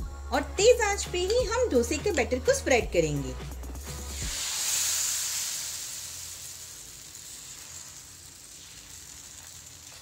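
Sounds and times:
batter sizzling on hot griddle: 0:03.8 - 0:10.0.

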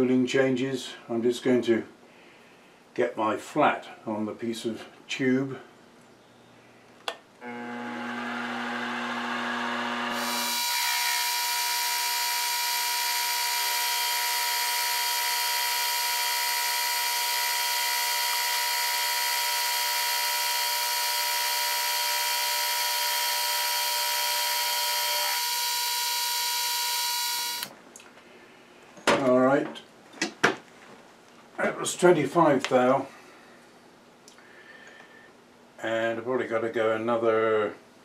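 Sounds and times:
milling machine cutting metal: 0:07.4 - 0:27.7.

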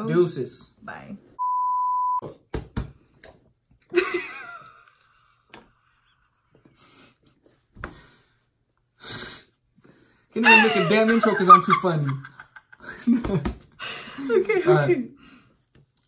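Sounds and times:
test-tone beep: 0:01.4 - 0:02.2.

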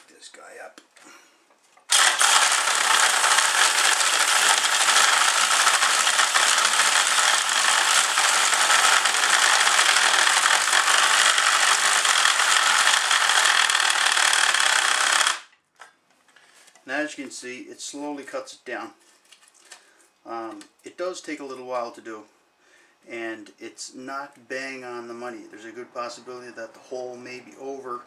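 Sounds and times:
power drill grinding pipe: 0:01.9 - 0:15.5.

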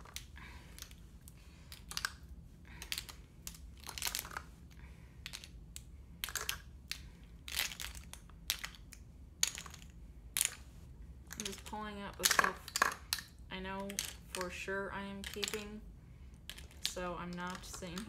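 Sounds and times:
lipstick tubes clicking on plastic: 0:01.7 - 0:02.2, 0:02.8 - 0:04.4, 0:05.2 - 0:10.6, 0:11.3 - 0:14.6, 0:15.2 - 0:15.8, 0:16.5 - 0:18.0.

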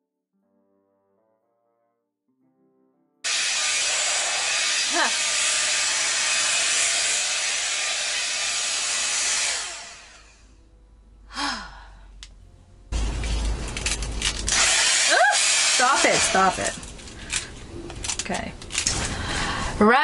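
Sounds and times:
hot air brush blowing: 0:03.3 - 0:10.6, 0:14.5 - 0:16.9
person sighing: 0:11.3 - 0:12.2.

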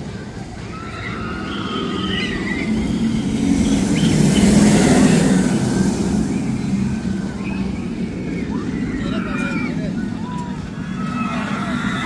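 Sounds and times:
roller coaster train rumbling past: 0:00.0 - 0:12.0.

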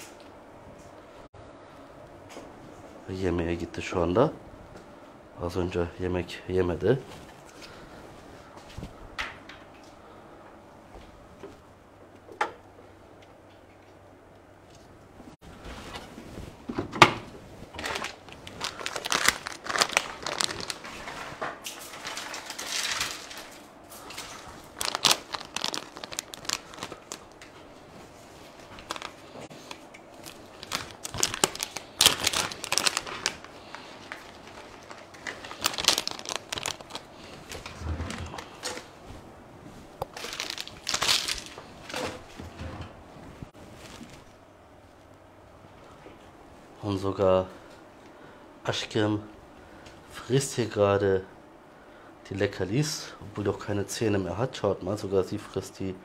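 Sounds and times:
plastic bag crinkling: 0:17.7 - 0:27.8, 0:28.4 - 0:39.0, 0:40.0 - 0:42.3.

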